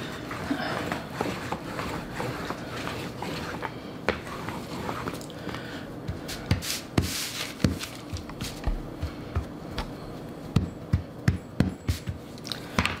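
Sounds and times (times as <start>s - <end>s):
rolling pin rubbing dough: 0.0s - 12.4s
paper rustling: 6.7s - 8.7s.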